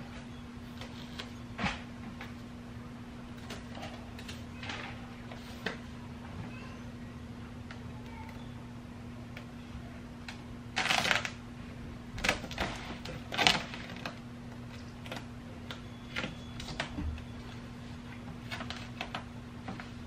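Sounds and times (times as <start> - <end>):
steady low hum: 0.0 - 20.0
foam sheet crinkling and rustling: 10.7 - 11.4, 12.2 - 15.3.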